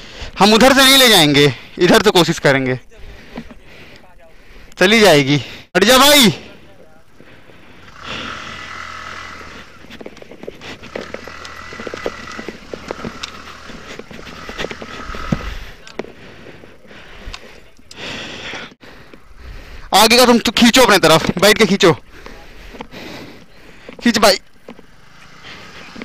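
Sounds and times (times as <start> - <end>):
motorcycle engine running unevenly: 7.7 - 15.8, 22.2 - 26.0.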